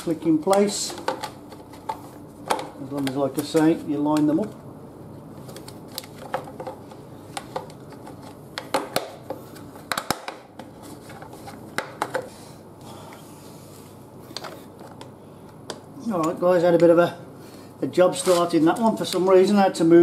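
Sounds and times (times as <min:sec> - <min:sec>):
sharp clicks and knocks of parts: 0:00.4 - 0:04.6, 0:05.5 - 0:12.3.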